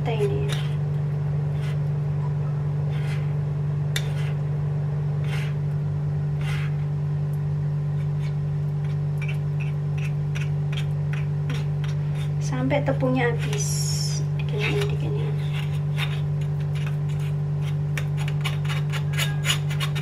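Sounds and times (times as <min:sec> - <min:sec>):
steady low hum: 0:00.0 - 0:20.0
spoon scraping metal strainer: 0:13.3 - 0:20.0.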